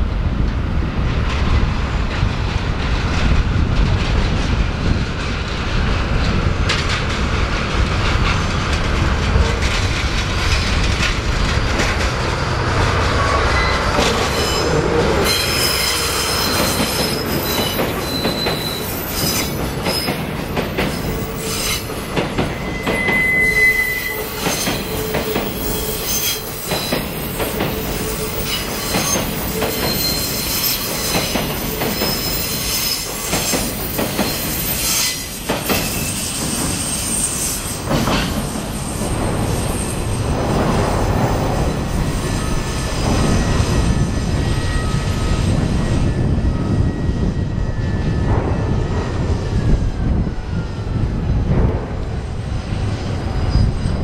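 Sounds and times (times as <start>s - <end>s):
locomotive rumble: 0.0s - 34.6s
train wheels squealing: 11.4s - 51.0s, 52.6s - 54.0s.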